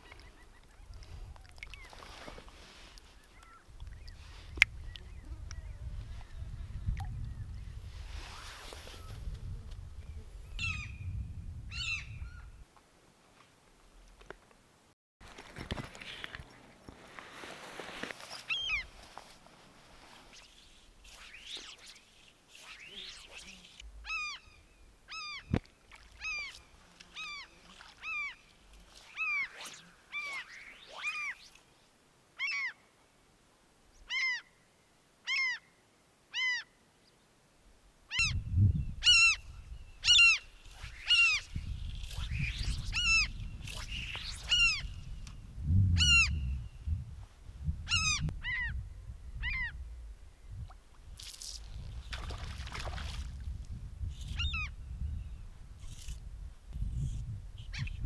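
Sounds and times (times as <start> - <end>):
wind buffeting microphone: 3.7 - 12.6, 38.2 - 58.0
bird calling rising and falling: 11.7 - 12.6, 18.3 - 18.9, 20.3 - 31.6, 32.4 - 32.8, 38.1 - 45.2, 46.0 - 46.6.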